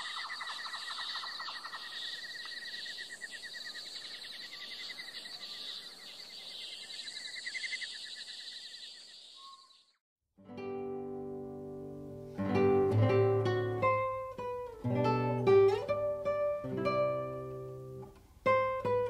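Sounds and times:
insects trilling: 0.0 - 10.0
lower pulsing insect chirp: 0.0 - 10.0.

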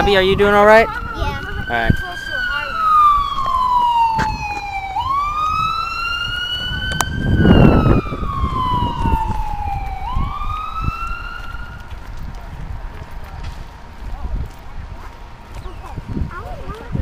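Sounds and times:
emergency siren wailing: 0.0 - 12.1.

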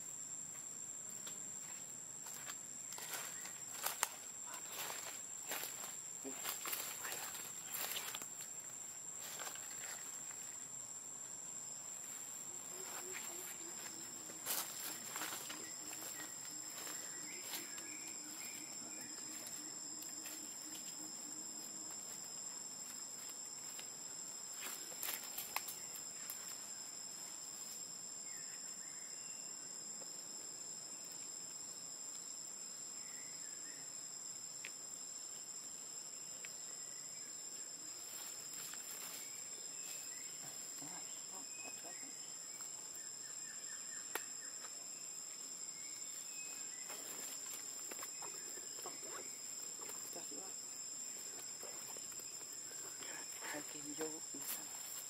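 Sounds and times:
high-pitched insect drone: 1.7 - 8.5, 11.9 - 29.8.

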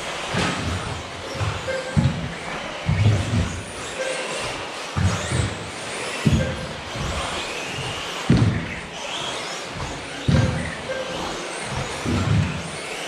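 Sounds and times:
electric motors whining: 0.0 - 13.0
heavy thud: 0.4 - 3.8, 8.3 - 8.9, 9.8 - 10.8.

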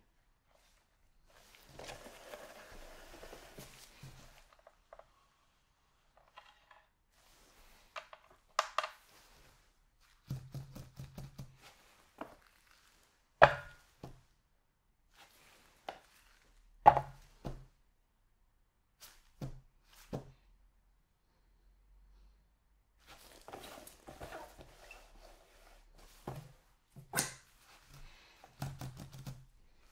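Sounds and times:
hard knocks on ceramic plate: 13.4 - 13.8.

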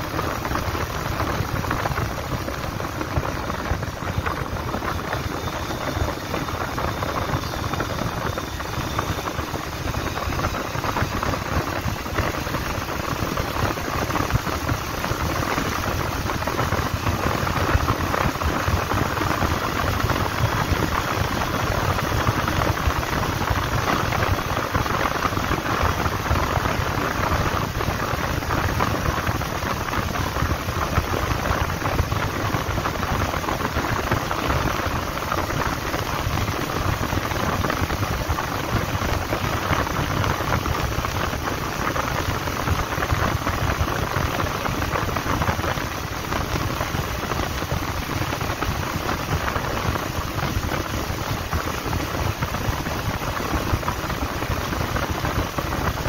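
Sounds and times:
road noise: 0.0 - 15.0.

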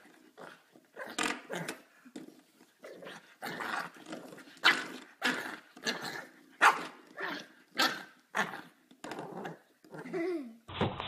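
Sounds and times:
puppy barking: 6.6 - 6.9.

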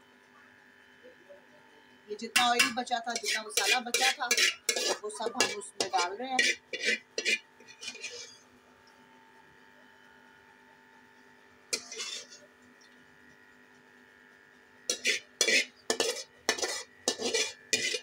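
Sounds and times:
metal spoon scraping metal pan: 2.3 - 8.4, 11.7 - 12.5, 14.9 - 18.0.

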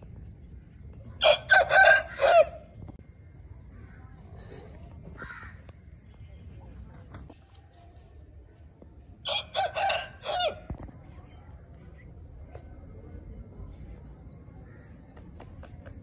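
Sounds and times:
rooster crowing: 1.2 - 2.6, 9.2 - 10.7.

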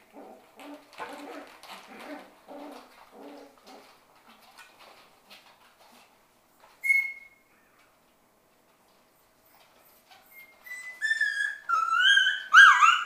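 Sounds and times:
puppy whining: 0.0 - 4.0, 6.8 - 7.4, 9.4 - 13.0
puppies scuffling: 0.0 - 13.0.

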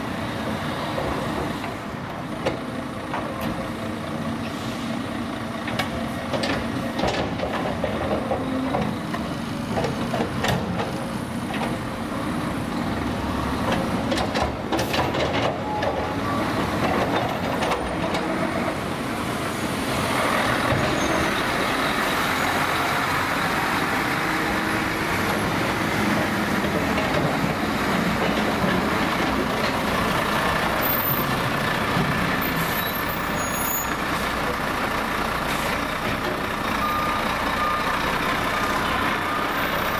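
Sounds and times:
excavator working: 0.0 - 39.9
truck diesel engine: 0.0 - 39.9.

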